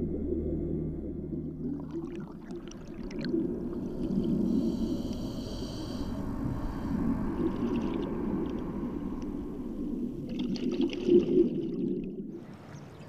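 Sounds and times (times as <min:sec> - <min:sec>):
diver exhaling bubbles underwater: 0:00.0 - 0:12.3
bubbling clicks: 0:01.6 - 0:04.3
breath hissing through regulator: 0:03.5 - 0:09.0.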